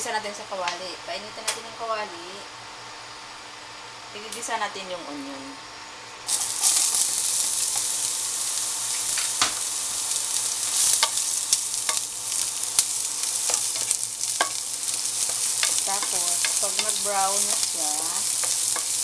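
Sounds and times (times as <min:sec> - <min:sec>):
onion sizzling in oil: 0:06.3 - 0:19.0
spatula scraping pan: 0:13.2 - 0:19.0.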